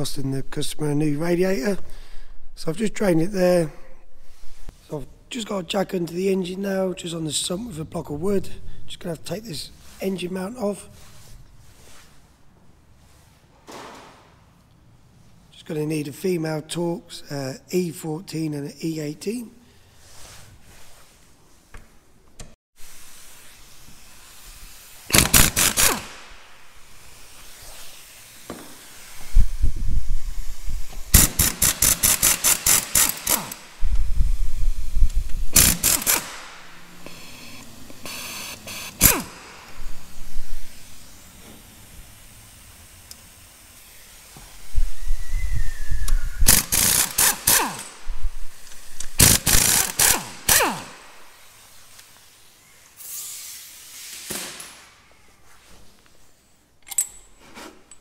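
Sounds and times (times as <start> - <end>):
ratchet clicking: 25.1 - 26.1, 31.1 - 33.7, 35.1 - 37.2, 46.4 - 47.9, 49.0 - 50.9.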